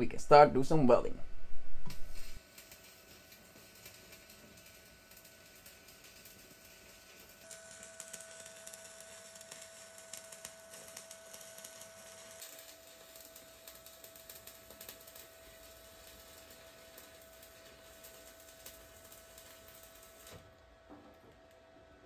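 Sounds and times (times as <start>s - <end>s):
steady high whine: 0.0s - 2.4s
welding arc crackle: 1.9s - 21.6s.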